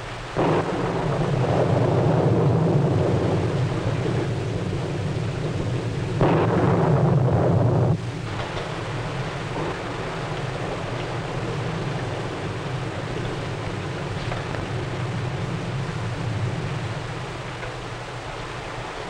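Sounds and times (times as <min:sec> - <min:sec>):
heavy rain: 0:00.0 - 0:19.0
thunder rumbling: 0:00.0 - 0:19.0.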